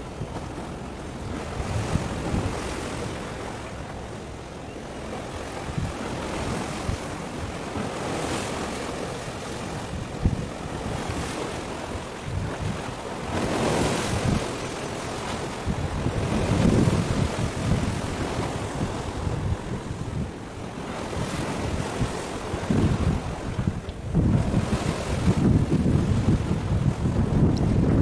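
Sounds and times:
low gusty rumbles and thumps: 0.0s - 2.8s, 5.3s - 7.9s, 9.7s - 14.6s, 15.6s - 20.4s, 21.0s - 28.0s
sea waves: 0.0s - 28.0s
wind buffeting microphone: 0.0s - 28.0s.

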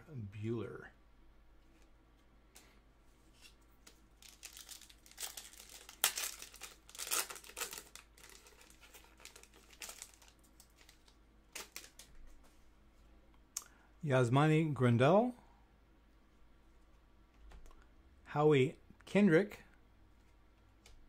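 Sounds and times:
foil wrapper tearing and crinkling: 4.2s - 12.1s.

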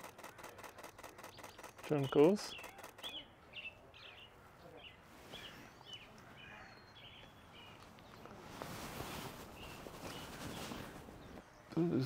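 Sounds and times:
bird chip calls: 0.0s - 7.9s.

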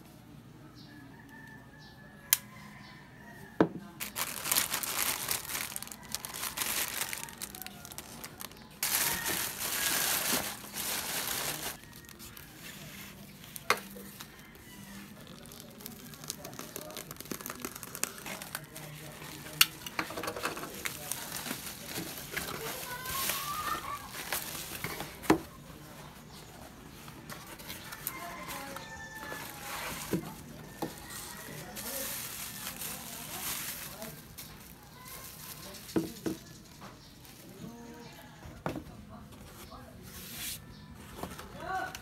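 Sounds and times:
plastic packaging crinkling and tearing: 4.0s - 25.3s, 27.4s - 37.6s.

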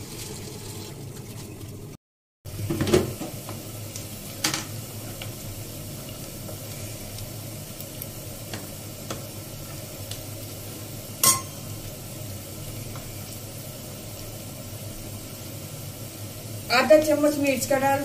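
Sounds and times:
hot oil sizzling: 0.0s - 1.9s, 2.5s - 18.0s
sharp metal clink: 11.2s - 11.6s.

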